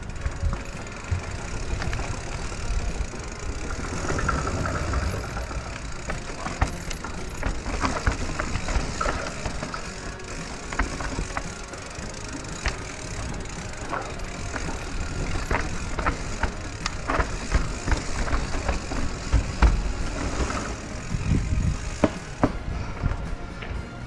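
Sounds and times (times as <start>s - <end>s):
bike rattling: 0.0s - 24.0s
bike tyres rolling on dirt: 0.0s - 24.0s
wind rumble on microphone: 21.0s - 23.4s.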